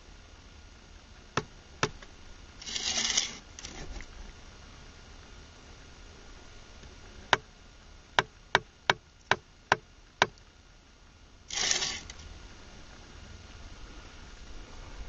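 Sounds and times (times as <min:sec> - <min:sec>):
plastic level scraping block: 0:02.6 - 0:04.0, 0:11.5 - 0:12.2.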